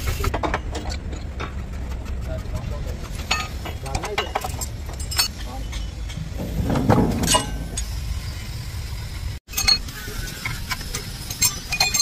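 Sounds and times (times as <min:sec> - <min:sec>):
low workshop rumble: 0:00.0 - 0:12.0
metal tools clinking: 0:03.2 - 0:06.4, 0:07.0 - 0:07.9, 0:09.5 - 0:12.0.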